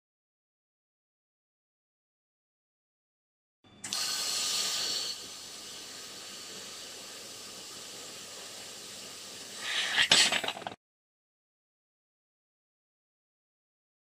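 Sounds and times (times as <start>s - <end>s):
laser cutting metal with gas hiss: 3.8s - 10.2s.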